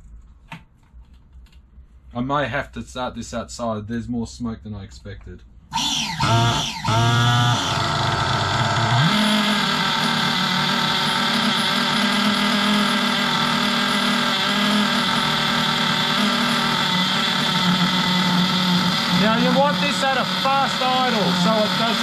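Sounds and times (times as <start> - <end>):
small two-stroke engine running: 5.7 - 22.0.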